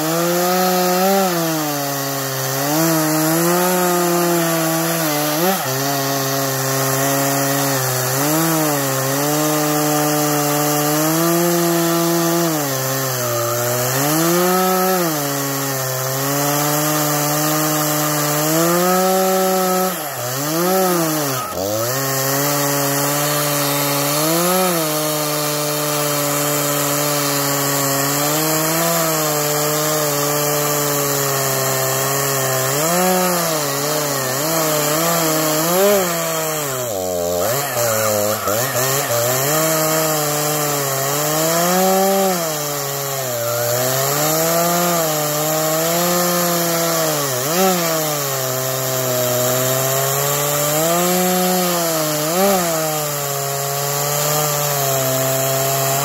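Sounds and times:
chainsaw cutting log: 0.0 - 56.0.

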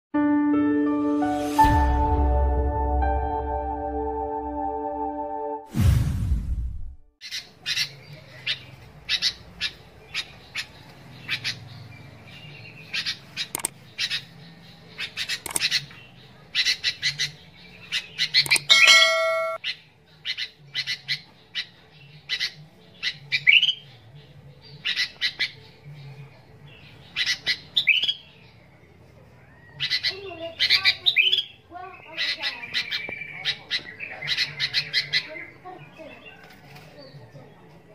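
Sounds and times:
bulbul chirping: 18.2 - 19.7
ringing chime: 18.7 - 19.6.

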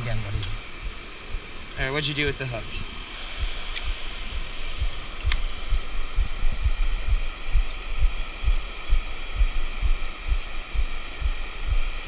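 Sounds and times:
steady high hiss: 0.0 - 12.0
regular low thumps: 3.8 - 12.0.

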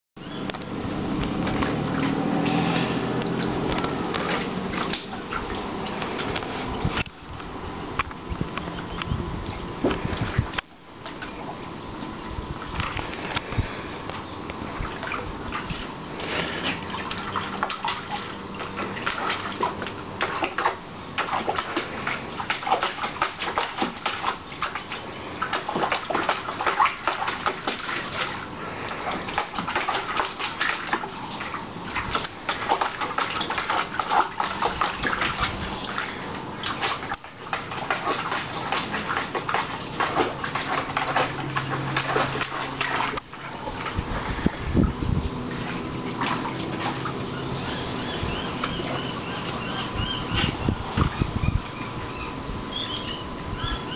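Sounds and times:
dog splashing in water: 1.1 - 7.0, 14.8 - 51.7.

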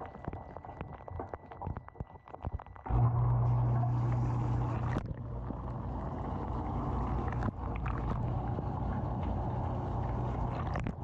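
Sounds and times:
dishwasher pump humming: 2.9 - 11.0.

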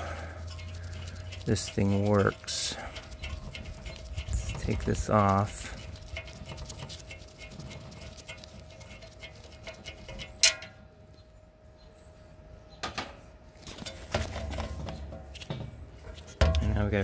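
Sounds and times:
screw ticking and rubbing: 0.0 - 10.8.

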